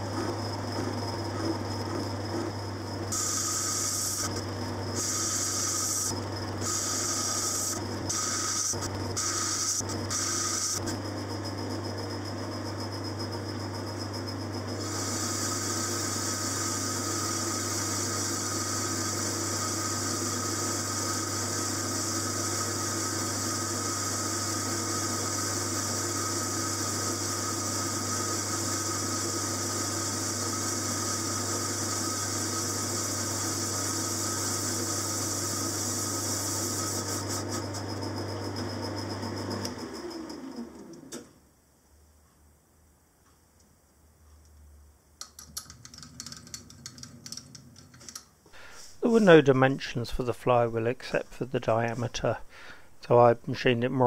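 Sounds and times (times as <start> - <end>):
lathe motor hum: 0.0 - 12.7, 13.6 - 41.2
high hiss of metal cutting: 3.1 - 4.4, 5.0 - 10.8, 14.8 - 37.7.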